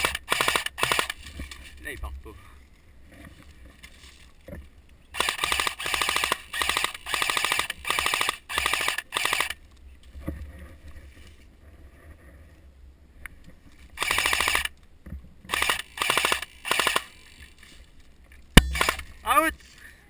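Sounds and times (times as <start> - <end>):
airsoft gun full-auto bursts: 0.0 - 1.2, 5.2 - 9.6, 14.0 - 14.7, 15.5 - 17.2, 18.7 - 19.1.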